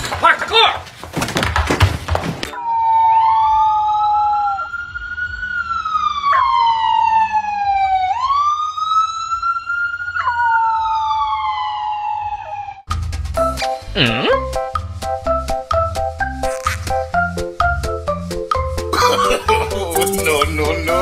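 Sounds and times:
puppy howling: 2.6s - 4.8s
emergency siren wailing: 2.6s - 12.9s.

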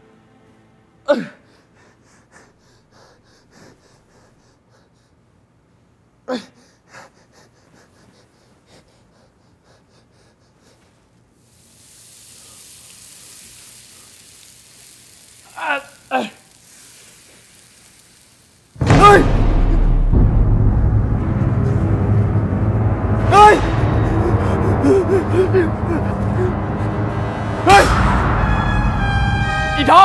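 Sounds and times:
man gasping and groaning: 6.3s - 7.6s, 23.6s - 26.8s
steady hiss: 10.3s - 20.1s, 21.2s - 30.0s.

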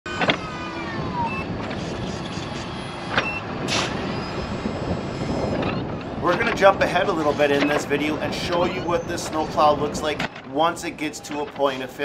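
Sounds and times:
whine falling in pitch: 0.1s - 6.8s
truck engine and road noise: 0.1s - 12.0s.

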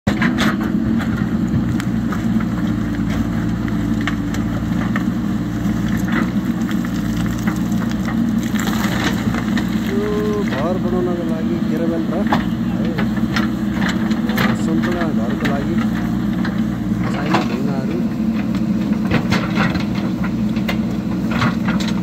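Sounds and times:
diesel engine running: 0.1s - 22.0s
stones clattering against bucket: 6.0s - 10.7s.

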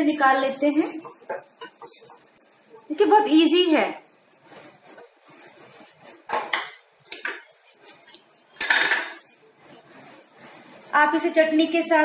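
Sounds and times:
dish and utensils knocking: 8.6s - 9.2s.

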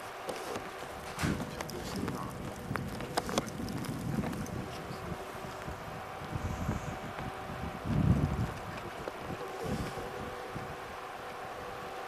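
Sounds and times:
wind buffeting microphone: 0.6s - 12.0s.

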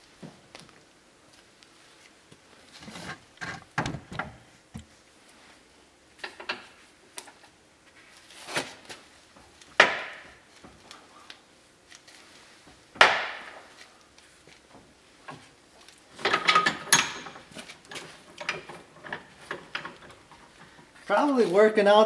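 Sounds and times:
vise handle clanking: 16.2s - 20.5s.

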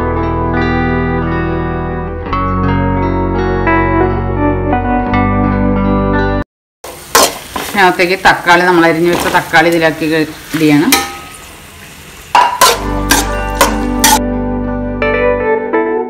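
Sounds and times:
onions frying sizzle: 6.8s - 14.2s
metal spatula scraping pan: 12.3s - 14.2s
soft background music: 12.6s - 16.0s.

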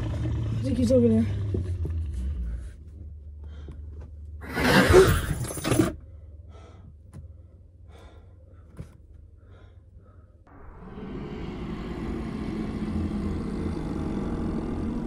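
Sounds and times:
low steady rumble: 6.0s - 15.0s.

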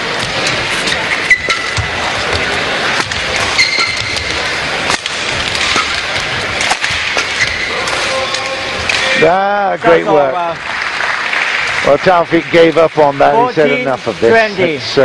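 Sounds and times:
shoes squeaking on court: 0.0s - 4.8s, 5.6s - 7.8s
arena crowd hum: 0.0s - 15.0s
racket hitting shuttlecock: 0.1s - 9.2s.

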